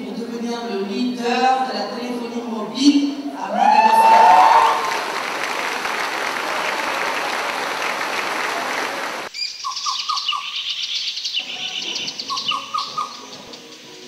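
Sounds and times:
descending bird chirps: 9.4 - 13.8
high bird twittering: 9.4 - 14.0.

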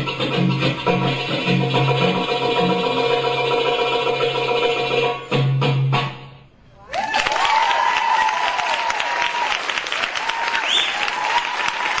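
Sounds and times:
music: 0.0 - 6.6
audience applauding: 6.9 - 12.0.

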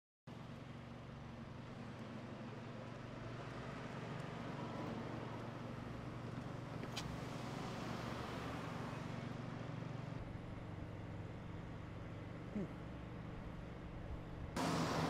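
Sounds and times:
cars passing: 3.0 - 10.2, 14.6 - 15.0.

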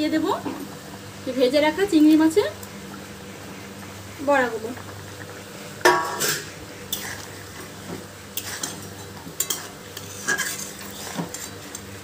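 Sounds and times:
metal spatula scraping a pot: 6.1 - 7.6, 8.4 - 11.9.

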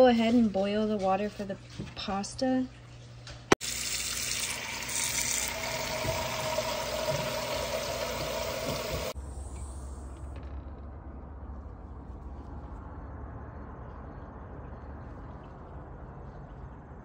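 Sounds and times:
tap water filling a pot: 3.6 - 9.2.

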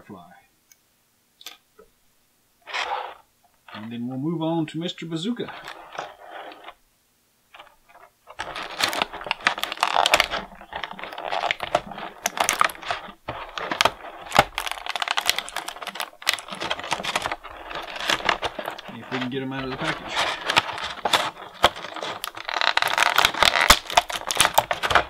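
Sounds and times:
plastic blister tray crinkling: 5.3 - 6.8, 7.5 - 25.0.

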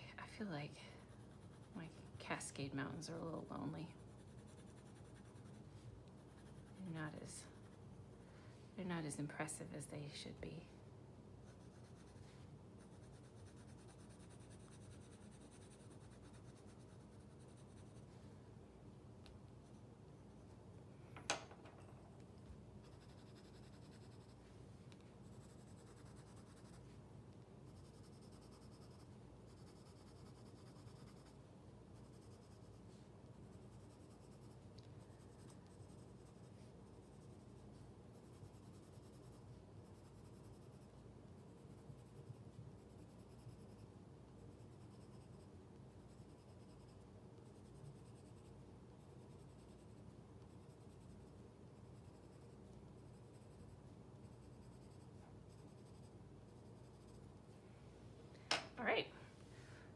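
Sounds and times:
pencil scratching on paper: 1.0 - 7.9, 11.4 - 18.1, 22.8 - 24.4, 25.2 - 27.0, 27.6 - 31.4, 32.0 - 57.4.

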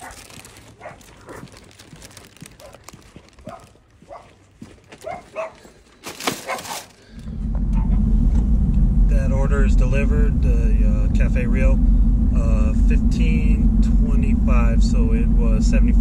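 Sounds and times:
dog barking: 0.0 - 1.6, 2.6 - 2.8, 3.4 - 4.4, 5.0 - 5.6, 6.4 - 6.8
car engine rumble: 7.2 - 16.0.

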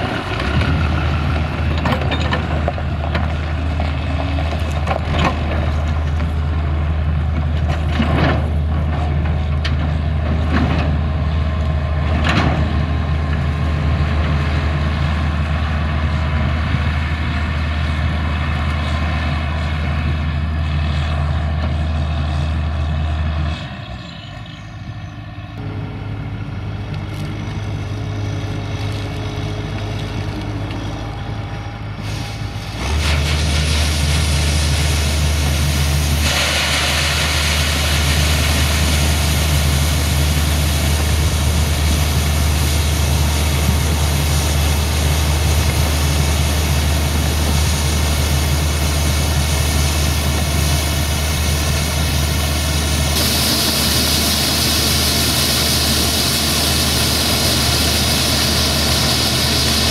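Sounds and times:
tractor engine running: 0.0 - 24.0, 24.6 - 59.9
combine harvester engine: 0.0 - 59.9
grain pouring from auger: 32.0 - 59.9.

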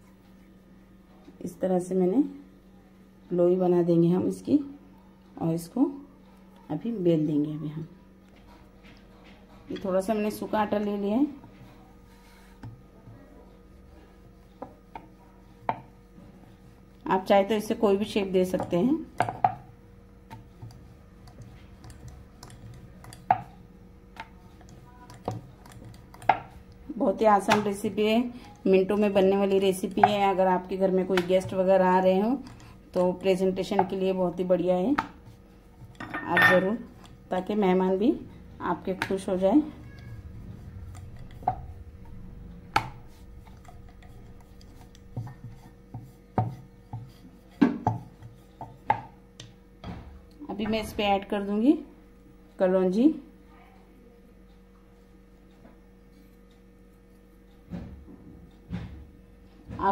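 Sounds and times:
rolling pin rubbing dough: 8.6 - 49.2
rolling pin knocking on board: 18.5 - 19.7, 29.9 - 30.3, 45.1 - 49.2.

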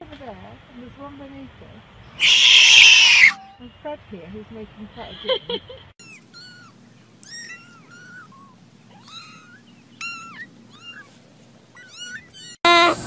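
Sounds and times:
kittens mewing: 2.2 - 3.6, 6.0 - 13.0.

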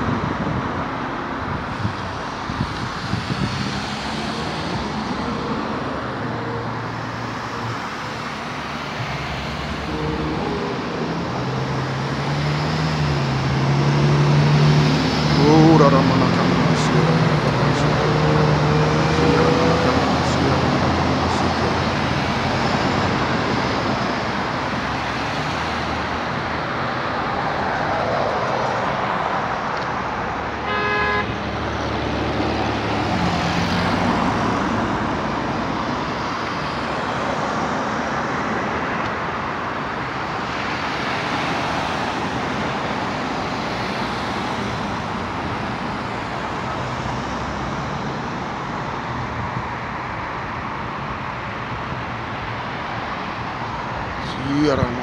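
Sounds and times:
road traffic: 0.0 - 55.0
car horn toot: 30.6 - 31.4.

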